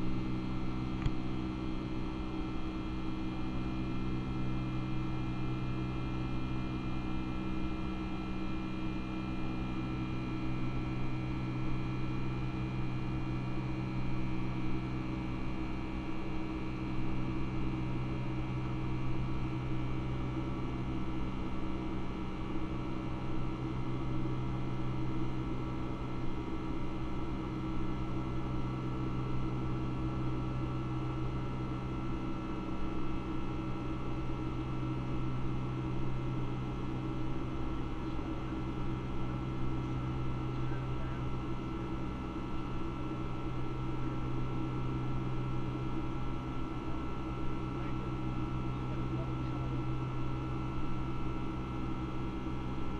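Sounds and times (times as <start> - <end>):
aircraft engine hum: 23.1 - 52.9.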